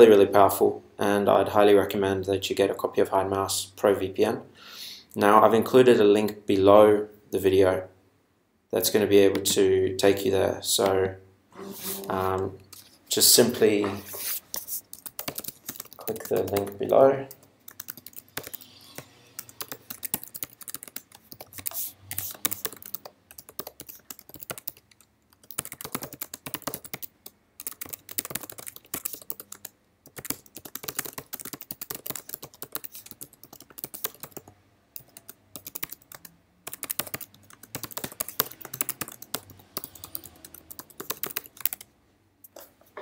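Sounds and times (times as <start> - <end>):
computer keyboard typing: 14.5 - 41.9.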